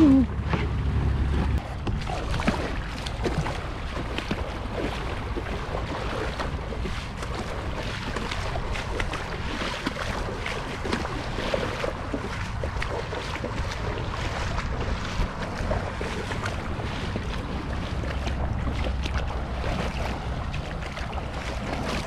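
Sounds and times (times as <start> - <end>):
kayak splashing in shallow water: 0.0 - 22.0
wind rumble on microphone: 0.0 - 22.0
kayak knocks and scrapes: 0.4 - 4.9.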